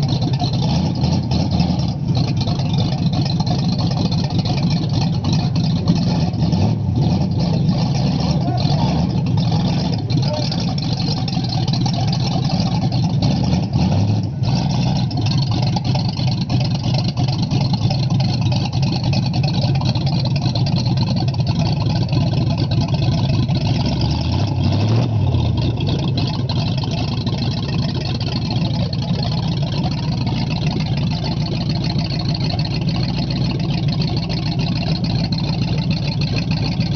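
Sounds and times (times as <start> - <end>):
car engine idling: 0.0 - 36.9
engine throttle blips: 0.0 - 36.9.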